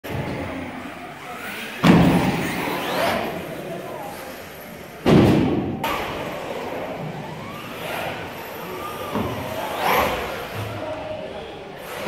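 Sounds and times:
electric motors whining: 6.2 - 12.0.

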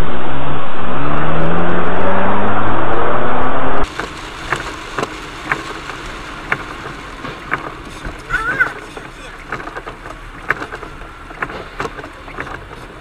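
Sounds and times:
engine accelerating: 0.0 - 13.0
heavy rain: 3.8 - 13.0
tyres on wet road: 3.8 - 13.0
windscreen wiper ticks: 3.8 - 13.0.

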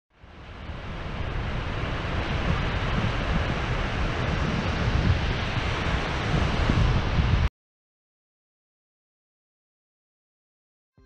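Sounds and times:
ocean surf washing up a beach: 0.1 - 7.5
wind buffeting microphone: 0.2 - 7.5.

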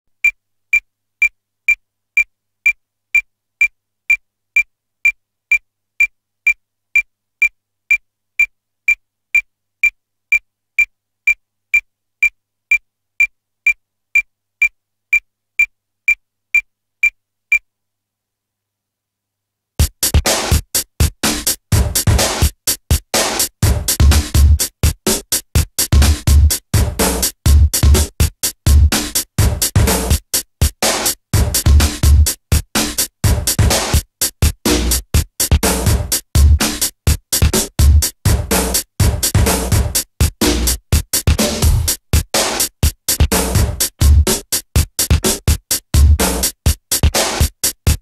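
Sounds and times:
high-pitched electronic ticks: 0.2 - 17.7
electronic music with drum-machine beat: 19.8 - 48.0.

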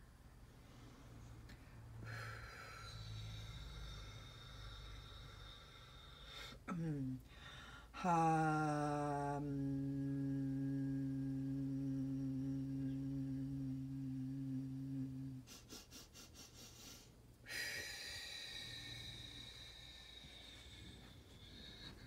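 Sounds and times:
person humming low note: 6.7 - 7.2, 8.0 - 15.7, 17.5 - 22.0.

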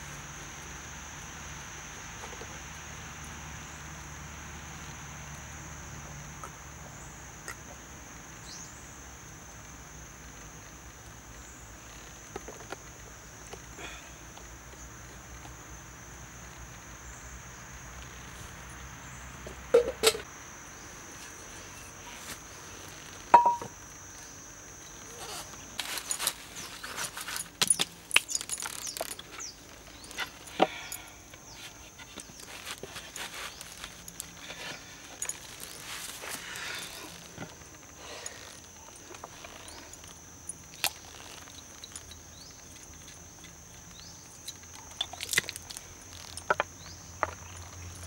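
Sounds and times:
insects droning: 0.0 - 48.0.

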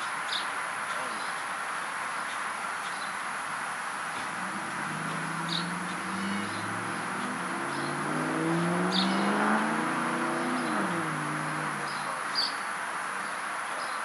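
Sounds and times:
passing vehicle engine: 3.3 - 13.1.

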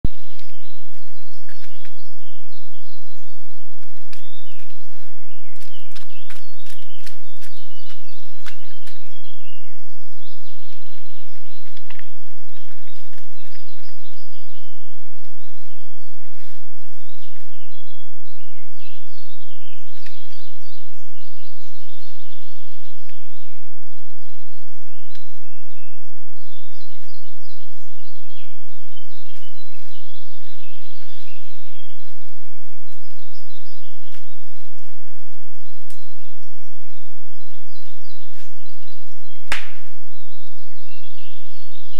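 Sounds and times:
songbirds singing: 0.0 - 41.9
sharp clicks and snaps: 5.5 - 9.2.

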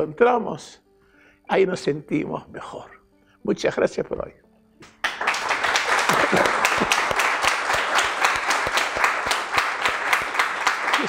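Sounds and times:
crowd applause: 5.0 - 11.0.

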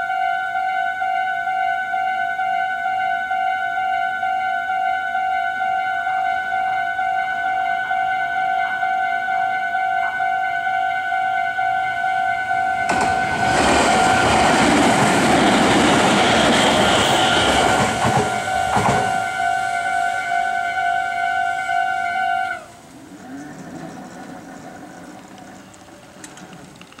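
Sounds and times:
crossing warning bell ringing: 0.0 - 22.4
train wheels clattering over rails: 12.8 - 19.8.

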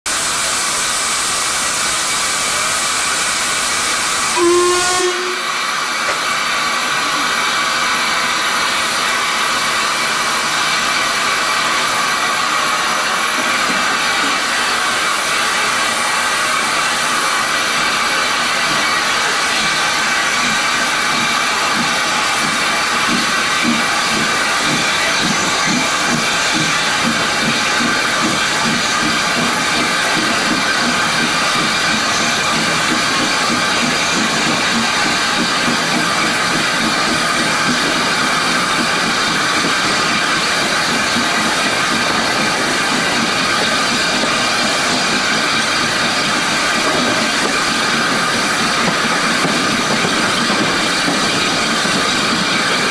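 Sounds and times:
steam locomotive hissing: 0.1 - 52.9
steam whistle blast: 4.2 - 5.7
locomotive exhaust chuffs: 8.8 - 52.9.

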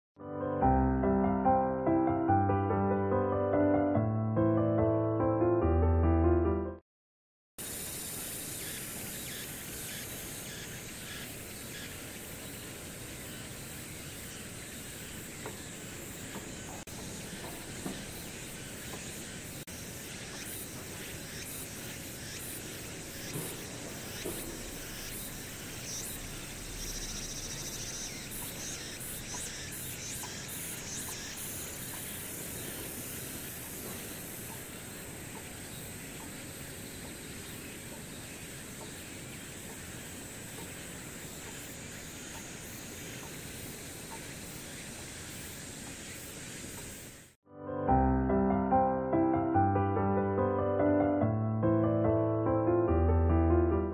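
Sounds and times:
insects chirping: 7.6 - 47.4
steady background hiss: 7.6 - 47.4.

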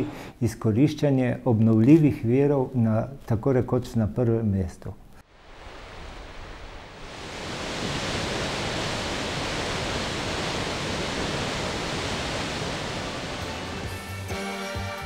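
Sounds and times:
water rushing from dam spillway: 5.3 - 14.0.

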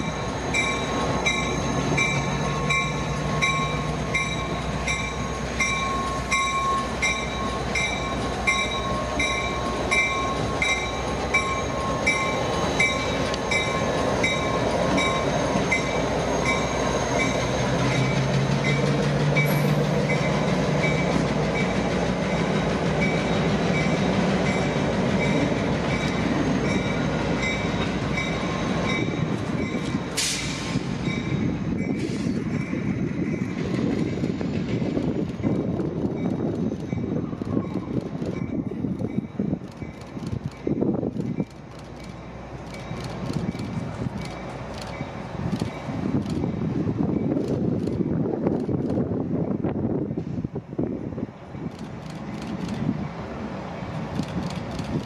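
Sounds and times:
locomotive bell ringing: 0.0 - 30.1, 30.9 - 33.6
high squeal of wheels on rails: 0.0 - 50.9
diesel locomotive engines rumbling: 0.0 - 55.0.

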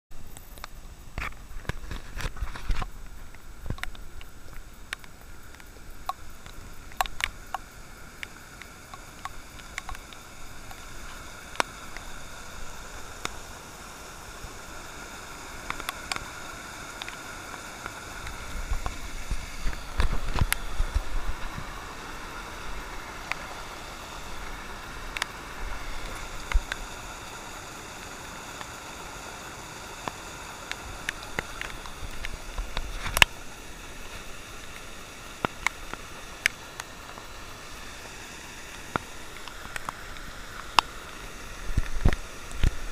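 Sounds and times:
floodwater rushing down a gully: 0.2 - 42.9
sharp clicks: 0.3 - 13.5, 15.3 - 27.3, 29.7 - 42.9.

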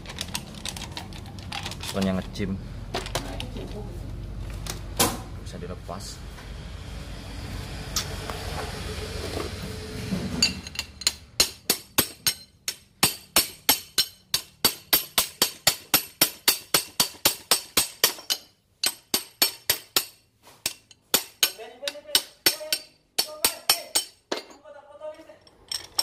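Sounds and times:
low hum with hiss: 0.0 - 13.3
metallic clinks: 25.4 - 26.0.

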